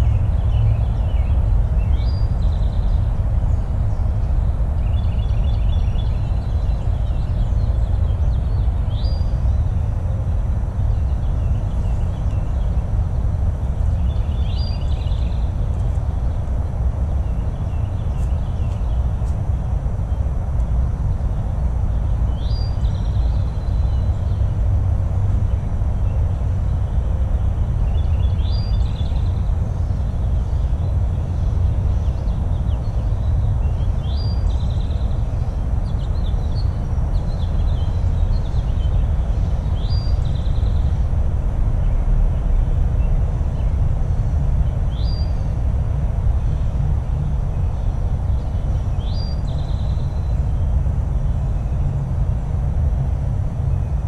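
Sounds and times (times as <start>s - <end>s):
songbirds singing: 0.0s - 54.0s
steady low rumble: 0.0s - 54.0s.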